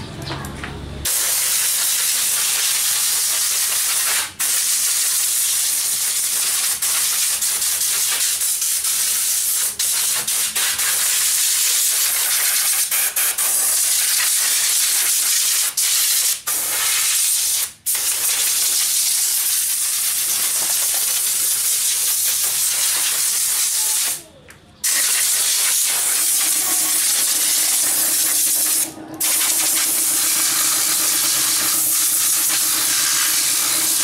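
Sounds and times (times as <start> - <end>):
compressed air hissing: 1.1 - 24.2, 24.8 - 34.0.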